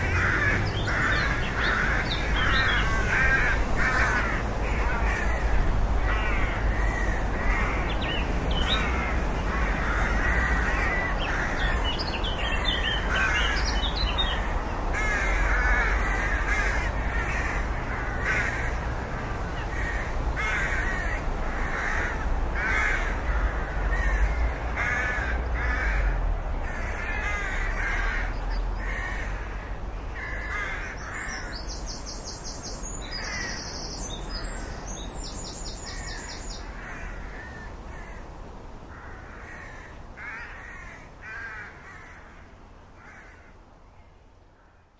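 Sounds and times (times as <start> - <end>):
rook cawing: 0.0 - 44.9.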